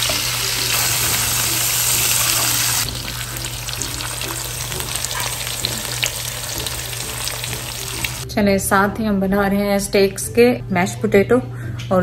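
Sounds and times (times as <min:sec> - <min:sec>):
steaks sizzling in a frying pan: 0:00.0 - 0:08.2.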